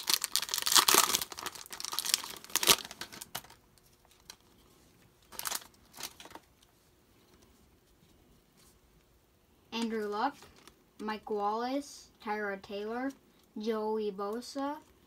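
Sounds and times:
foil wrapper crinkling and tearing: 0:00.0 - 0:04.4, 0:05.3 - 0:06.5.

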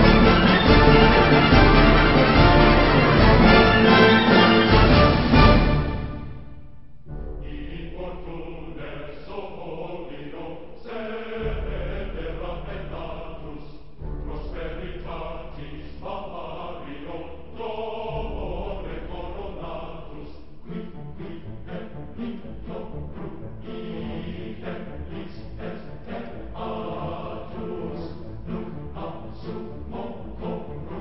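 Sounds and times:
choral chanting: 0:00.0 - 0:31.0
deep bass: 0:07.0 - 0:09.0, 0:11.4 - 0:16.9, 0:18.1 - 0:24.2.

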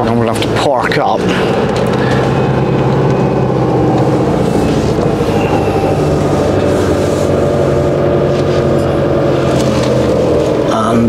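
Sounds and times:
motorhome engine running: 0:00.0 - 0:11.0.

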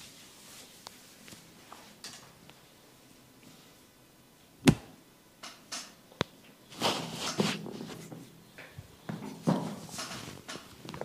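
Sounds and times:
hands rubbing and patting hair: 0:00.0 - 0:02.0, 0:06.7 - 0:08.1
sharp smack or pop: 0:04.6 - 0:04.9.

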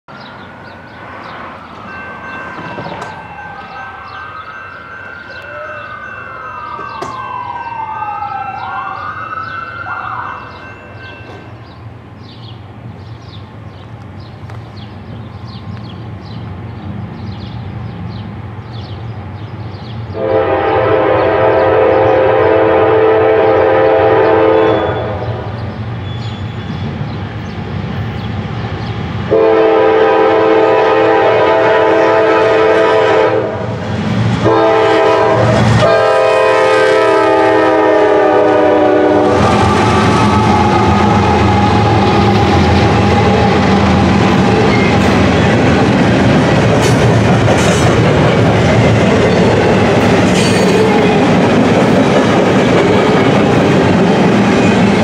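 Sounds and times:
siren wailing: 0:01.5 - 0:10.8, 0:35.8 - 0:44.0
train air horn blasts: 0:20.1 - 0:25.6, 0:29.3 - 0:33.8, 0:34.4 - 0:44.0
locomotive engine rumble: 0:32.0 - 0:55.0.

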